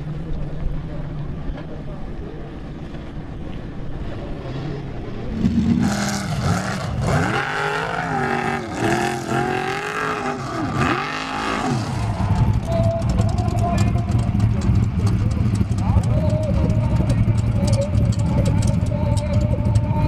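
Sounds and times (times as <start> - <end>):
buggy engine revving: 3.9 - 20.0.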